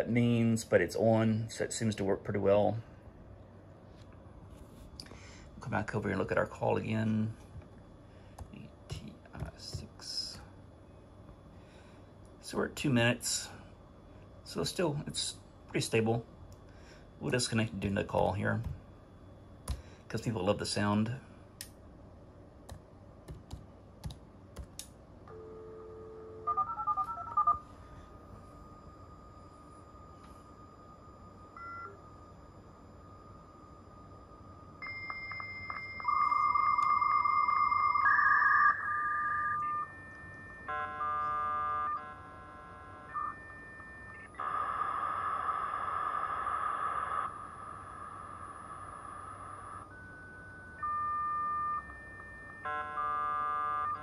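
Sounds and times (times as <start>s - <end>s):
dial tone: 25.3s - 27.6s, 34.8s - 54.0s
touch-tone dialing: 35.0s - 41.4s.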